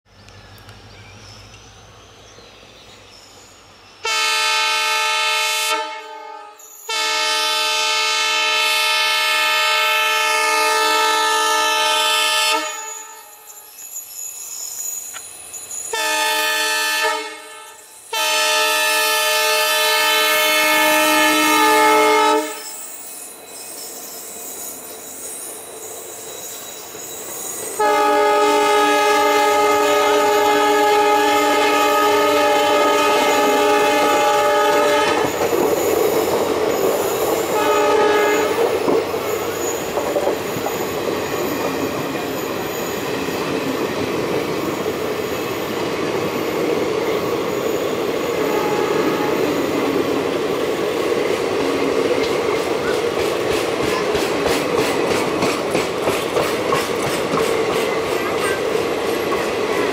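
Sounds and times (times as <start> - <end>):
train running noise: 0.1 - 59.9
locomotive horn blasts: 4.0 - 13.3, 15.9 - 22.7, 27.8 - 35.4, 37.6 - 38.7, 48.4 - 49.6.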